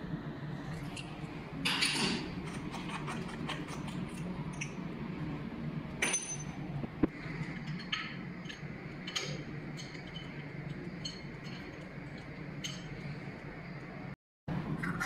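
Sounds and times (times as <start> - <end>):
steady low hum: 0.0 - 15.0
ringing metallic clink: 6.0 - 6.5.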